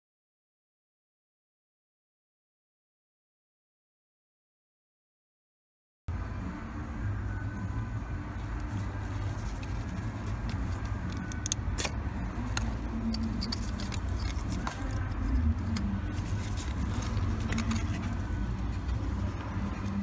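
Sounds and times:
screwdriver clicking on metal: 0:11.0 - 0:15.0.

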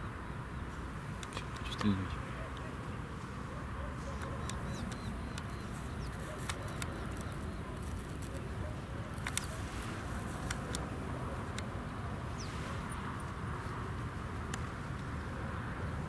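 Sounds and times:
sharp light clicks: 0:04.2 - 0:08.4, 0:09.2 - 0:09.6.

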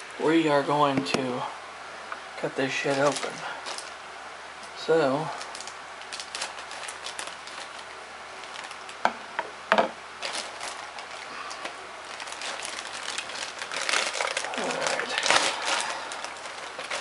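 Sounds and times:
plastic bag crinkling: 0:02.6 - 0:04.0, 0:04.6 - 0:09.1, 0:10.2 - 0:17.0.

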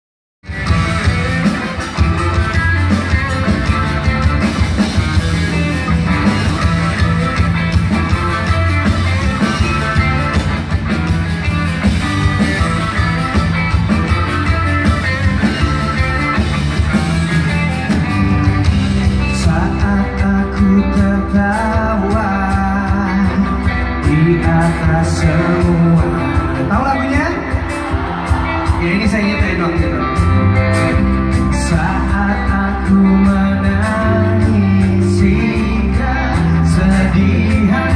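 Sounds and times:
pop-rock band playing live: 0:00.4 - 0:37.9
male singer: 0:19.2 - 0:27.7, 0:28.6 - 0:30.3, 0:30.9 - 0:37.9.

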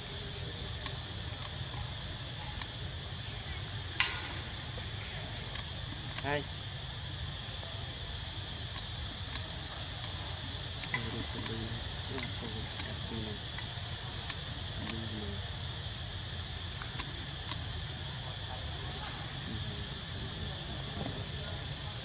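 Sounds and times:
faint distant voices: 0:00.0 - 0:22.0
high-pitched insect drone: 0:00.0 - 0:22.0
sharp clicks: 0:10.8 - 0:15.1.

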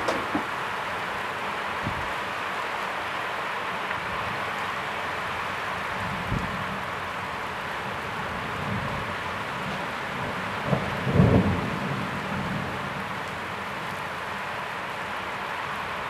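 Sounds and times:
steady rain hissing: 0:00.0 - 0:16.0
thunder clap and rumble: 0:10.6 - 0:12.6.

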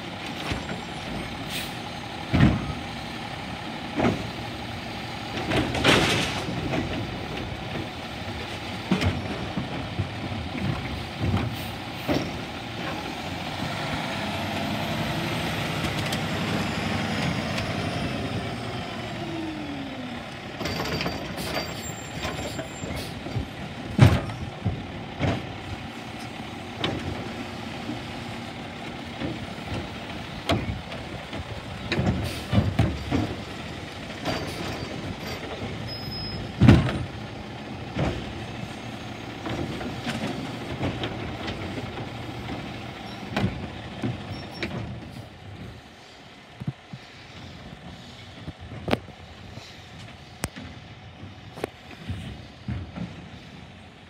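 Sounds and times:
garbage truck diesel engine droning: 0:00.0 - 0:54.0
carts banging against metal: 0:05.3 - 0:07.9, 0:29.2 - 0:45.1.

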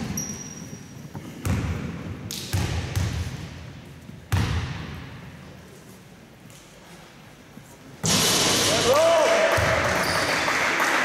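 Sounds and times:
basketball bouncing on wooden floor: 0:01.2 - 0:01.9, 0:02.5 - 0:03.3, 0:04.3 - 0:05.0.

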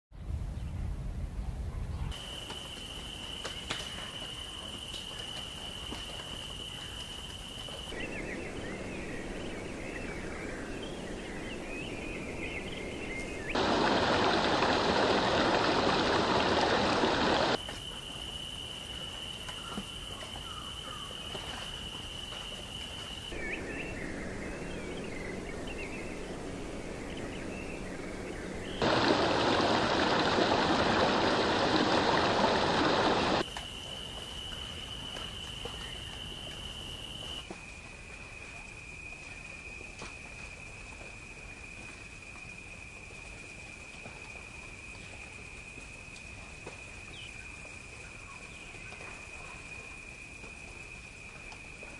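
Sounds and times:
high insect drone: 0:02.2 - 0:09.2, 0:13.6 - 0:27.0, 0:28.6 - 0:37.5
running water rushing: 0:02.2 - 0:18.2, 0:21.2 - 0:33.4.

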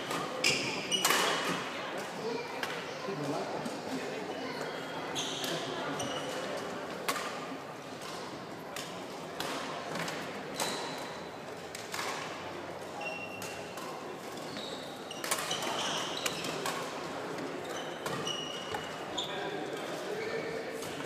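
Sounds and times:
background chatter echoing: 0:00.0 - 0:21.0
shoes squeaking on wooden floor: 0:14.4 - 0:16.6, 0:17.6 - 0:19.5.

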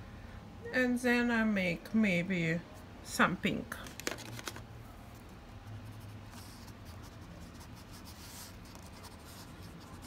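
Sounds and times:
crayon scratching on paper: 0:05.9 - 0:10.0.

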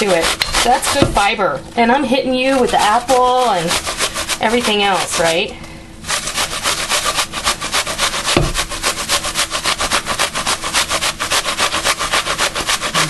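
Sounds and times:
apple grated on metal grater: 0:00.0 - 0:13.0
low thump: 0:08.3 - 0:08.7.

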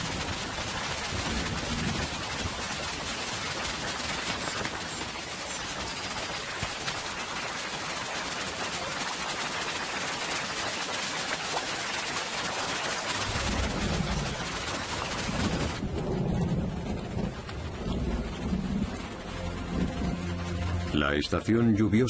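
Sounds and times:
low rumble of thunder: 0:00.0 - 0:04.4, 0:13.2 - 0:20.5
heavy rain on river water: 0:00.0 - 0:21.3.

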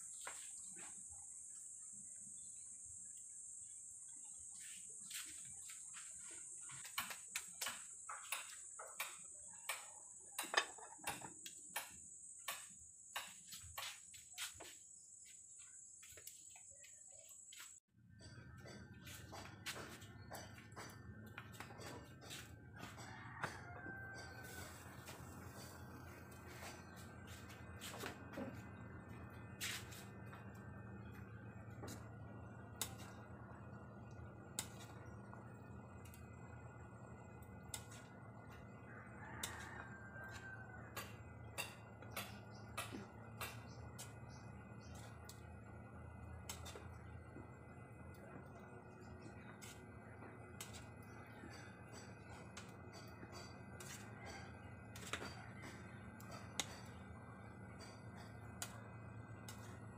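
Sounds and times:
crickets chirping: 0:00.0 - 0:17.8.

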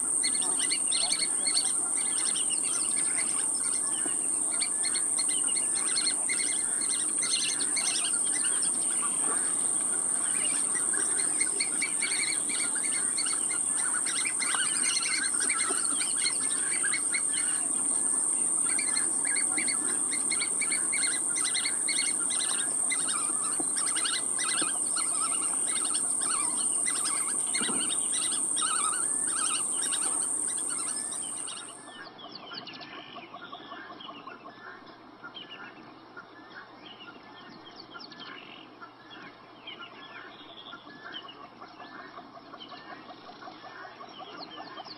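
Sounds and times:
high-pitched whine: 0:00.0 - 0:31.8
birds chirping and twittering: 0:00.0 - 0:44.9.

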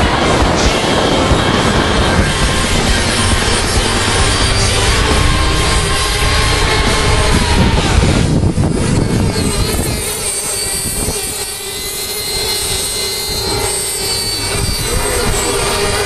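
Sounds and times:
model boat engines whining: 0:00.0 - 0:16.0.

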